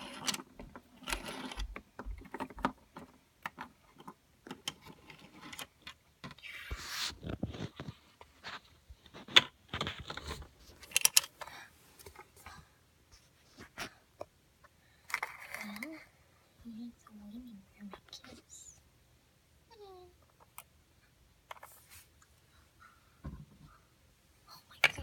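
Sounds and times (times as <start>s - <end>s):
plastic toy figures handled: 0.0s - 12.6s, 15.0s - 16.1s, 21.5s - 22.1s.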